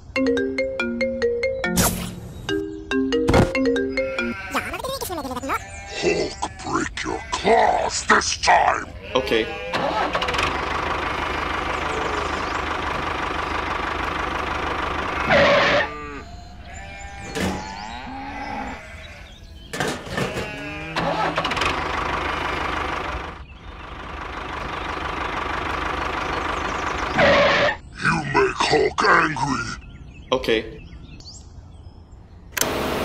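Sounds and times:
short pitched cries: 0:03.9 - 0:06.6, 0:14.9 - 0:19.3.

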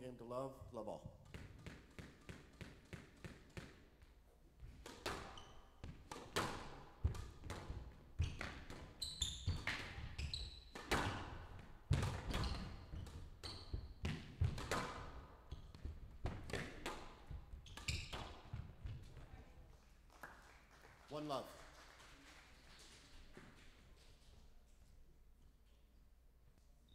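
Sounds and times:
squash ball hitting rackets and walls: 0:01.0 - 0:19.4
shoes squeaking on court floor: 0:04.6 - 0:19.4.

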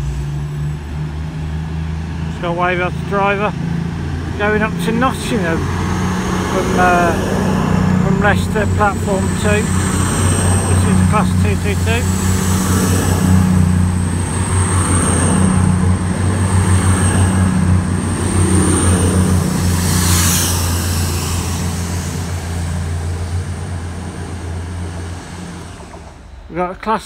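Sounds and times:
diesel train engines droning: 0:00.0 - 0:27.0.

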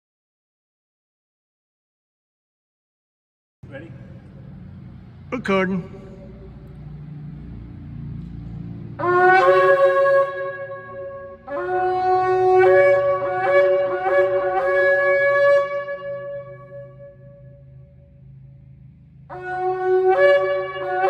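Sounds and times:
shofar blasts: 0:09.0 - 0:18.0, 0:19.3 - 0:21.0.

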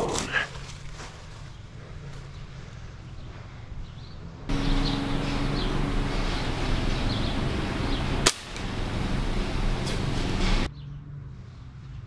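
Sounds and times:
outdoor background noise: 0:00.0 - 0:12.0
air rifle firing: 0:08.0 - 0:10.6.

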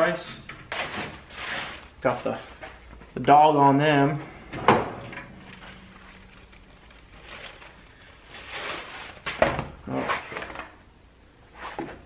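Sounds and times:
liner sheets rustling: 0:04.6 - 0:10.6.

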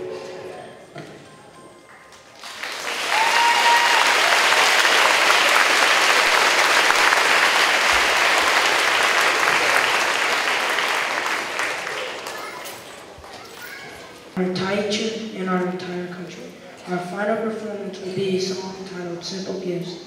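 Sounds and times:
audience applauding: 0:02.3 - 0:13.5.

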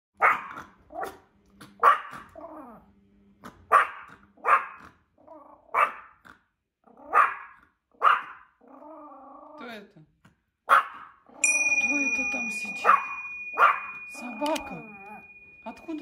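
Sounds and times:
small dog barking: 0:00.2 - 0:01.2, 0:01.8 - 0:02.4, 0:03.7 - 0:04.9, 0:05.7 - 0:06.2, 0:07.1 - 0:08.6, 0:10.7 - 0:11.2, 0:12.8 - 0:14.0
dog growling: 0:02.1 - 0:07.8, 0:08.5 - 0:09.7.

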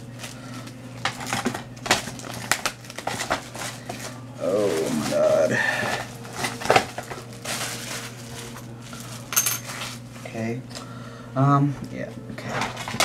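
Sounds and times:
plastic wrapping rustling and crinkling: 0:00.1 - 0:10.3.

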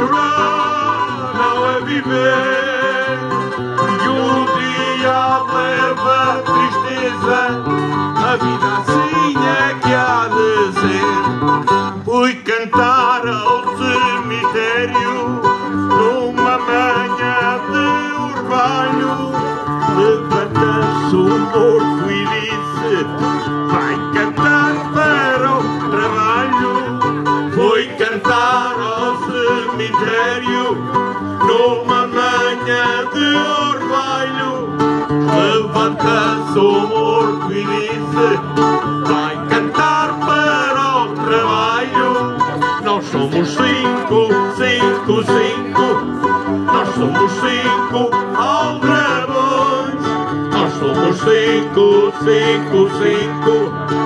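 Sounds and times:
folk music on plucked strings: 0:00.0 - 0:54.0.

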